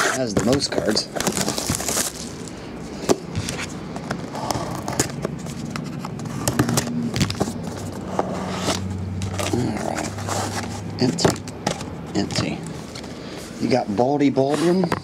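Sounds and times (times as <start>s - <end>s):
plastic shrink-wrap crinkling: 0.9s - 2.6s.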